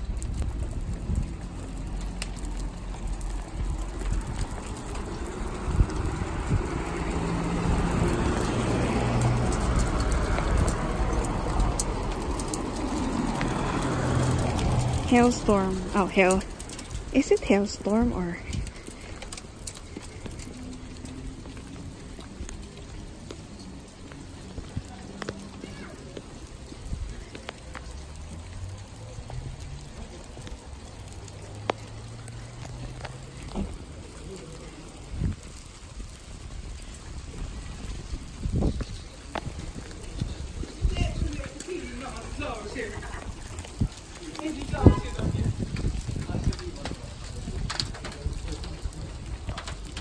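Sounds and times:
hail and rain on pavement: 0.0 - 50.0
passing traffic hum: 0.0 - 50.0.

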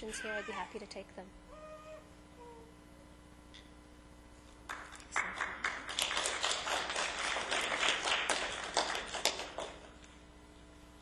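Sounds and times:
small audience applauding: 4.6 - 10.0.

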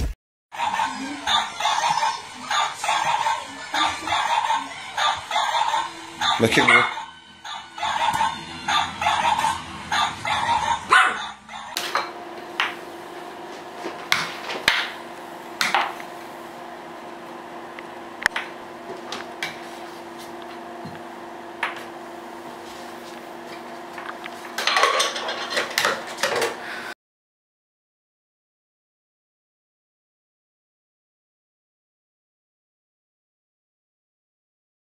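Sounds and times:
dog yapping: 4.1 - 11.8
air hockey blower humming: 7.8 - 26.9.

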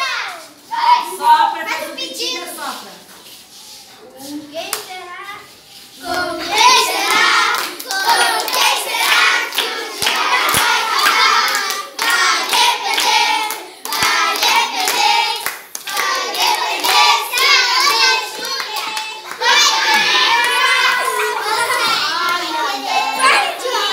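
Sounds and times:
children singing: 5.9 - 23.9
children clapping: 6.0 - 23.9.

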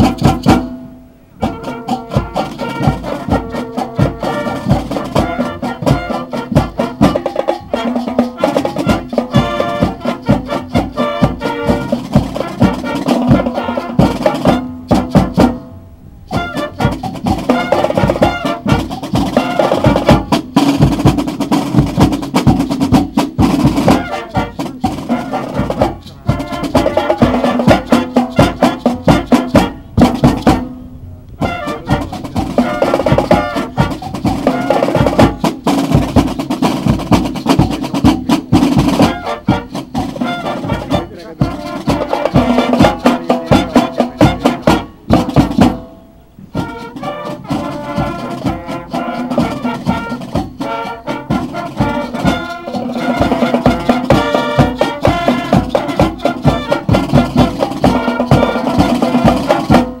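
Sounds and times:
marching band playing: 0.0 - 60.0.

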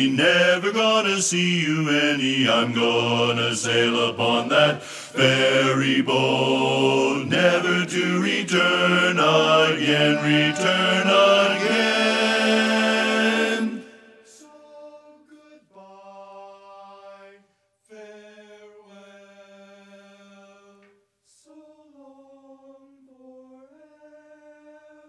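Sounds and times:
men singing close harmony: 0.0 - 25.0
quick breath: 4.8 - 5.2.

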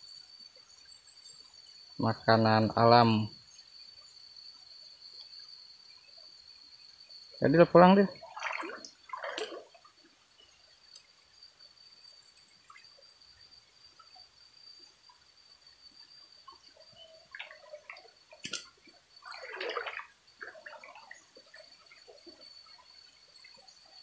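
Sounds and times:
stream water splashing and gurgling: 7.5 - 11.2, 16.0 - 24.0.

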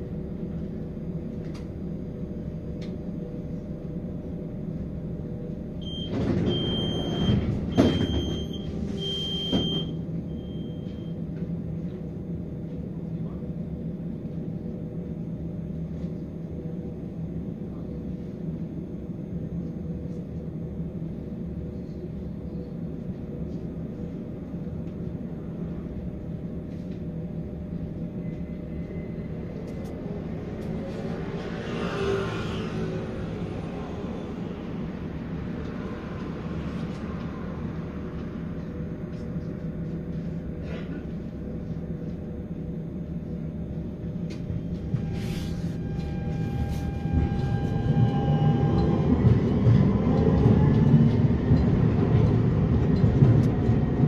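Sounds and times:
tram electrical hum: 0.0 - 54.0
high warning beeps: 5.8 - 11.1.

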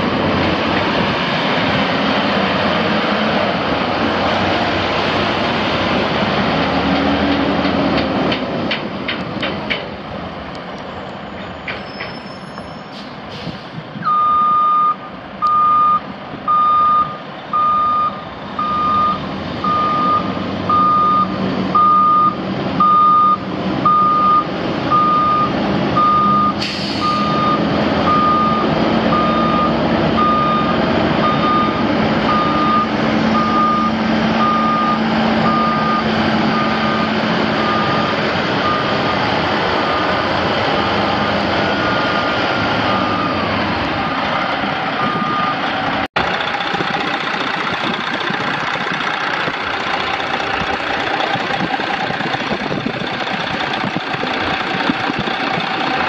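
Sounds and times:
diesel truck engine running: 0.0 - 10.6, 13.3 - 56.0
truck backup alarm beeping: 14.0 - 44.4, 45.0 - 45.7.

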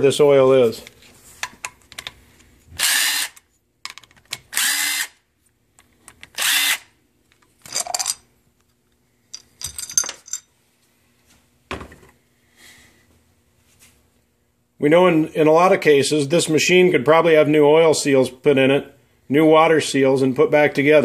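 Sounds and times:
power drill motor running: 2.8 - 3.4, 4.5 - 5.2, 6.4 - 6.9
metal clicks and rattles: 9.3 - 10.4.

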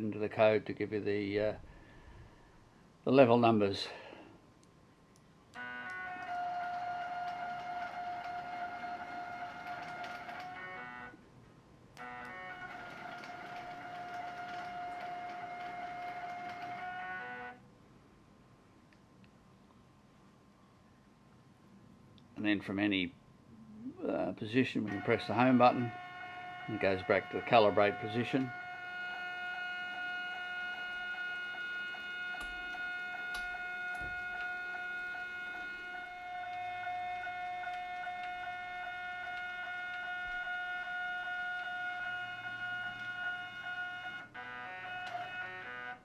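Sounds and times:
stepper motor whining: 5.5 - 11.2, 12.0 - 17.6, 24.7 - 46.0.

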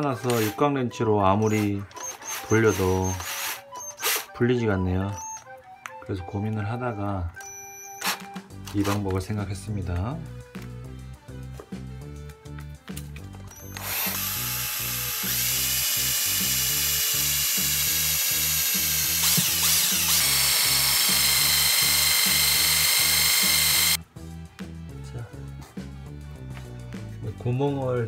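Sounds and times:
cordless drill whining: 0.0 - 0.6, 1.3 - 4.4, 7.4 - 8.7, 13.5 - 24.0
background music with beat: 8.0 - 13.6, 19.8 - 28.0.

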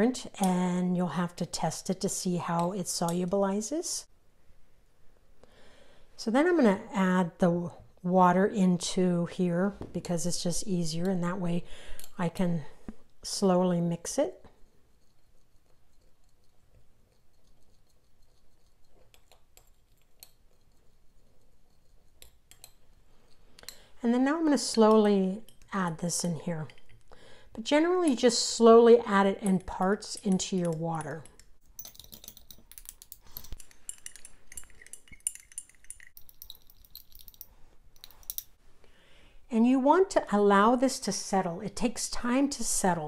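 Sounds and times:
stirring rod clinking in glass beaker: 14.9 - 23.9, 24.7 - 27.0, 29.4 - 38.6
water mixing in glass dish: 29.1 - 38.5.

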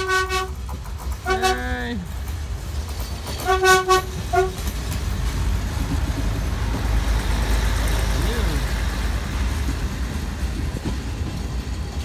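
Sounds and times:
train horn toots: 0.0 - 0.6, 1.2 - 1.7, 3.4 - 4.7
train engine and wheels rumbling: 0.0 - 12.0.

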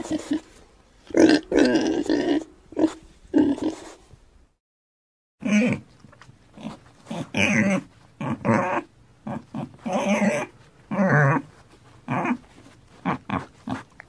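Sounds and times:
pig grunting squeals: 0.0 - 0.5, 1.1 - 3.9, 5.4 - 5.8, 6.6 - 13.9.

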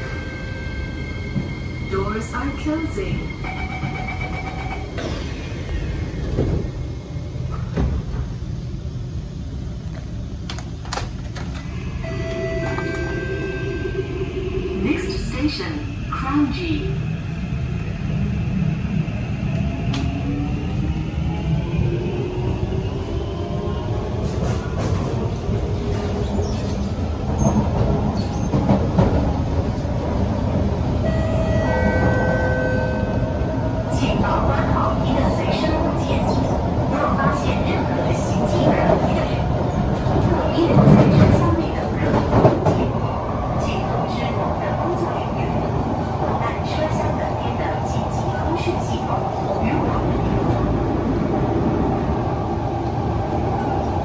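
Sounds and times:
train door warning tone: 0.0 - 5.5, 11.5 - 15.5, 31.0 - 36.6
low rumble inside train: 0.0 - 54.0.

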